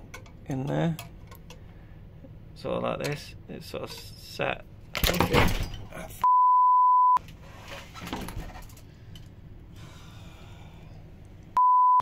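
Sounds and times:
censor bleep tone: 6.2 - 7.2, 11.6 - 12.0.

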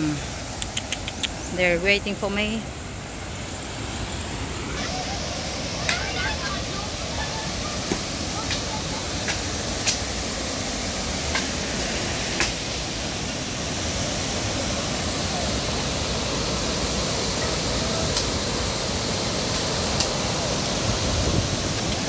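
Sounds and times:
faint clicks: 0.5 - 1.4
water rushing over dam: 2.7 - 22.0.

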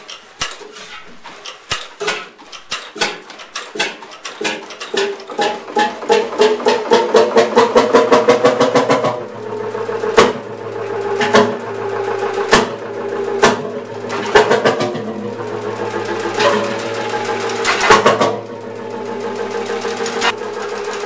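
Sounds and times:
engine hum: 2.5 - 21.0
tractor engine firing bangs: 10.0 - 15.4, 16.0 - 18.5.

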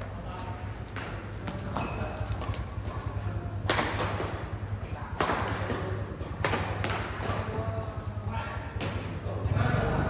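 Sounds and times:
steady low hum: 0.0 - 10.0
racket hitting shuttlecock: 0.8 - 7.6, 8.7 - 9.3.

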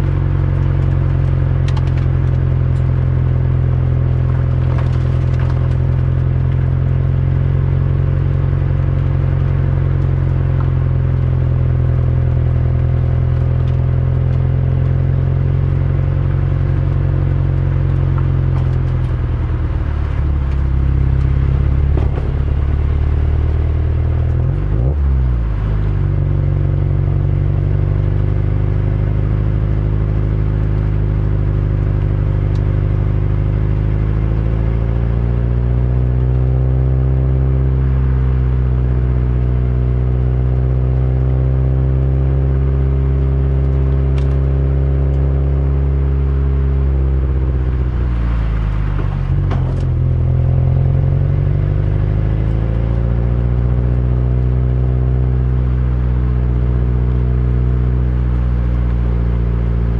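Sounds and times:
car engine running: 0.0 - 59.9.

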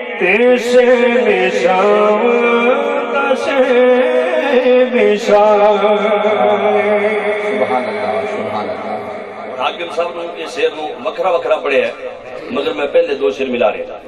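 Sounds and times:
man singing devotional song: 0.0 - 10.9.

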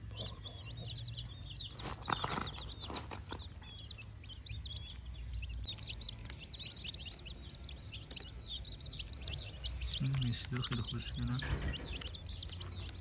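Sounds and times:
baby chicks peeping: 0.0 - 13.0.

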